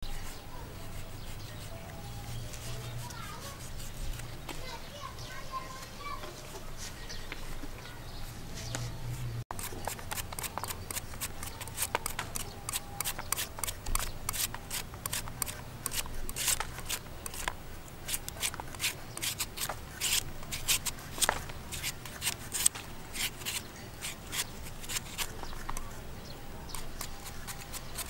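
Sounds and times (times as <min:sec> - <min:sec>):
slicer scraping fruit flesh: 0:09.5 - 0:26.0, 0:26.6 - 0:28.0.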